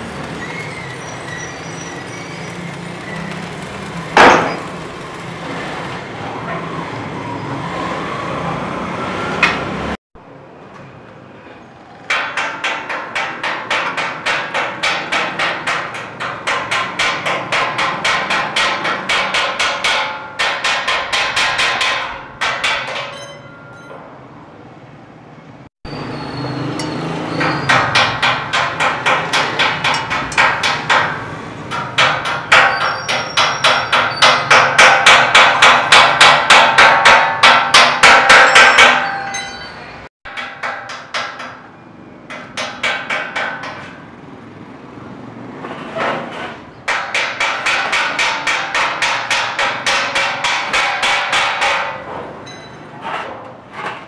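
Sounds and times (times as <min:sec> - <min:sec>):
hammer striking metal: 0:04.2 - 0:04.7, 0:12.1 - 0:24.2, 0:26.7 - 0:44.0, 0:46.9 - 0:52.8.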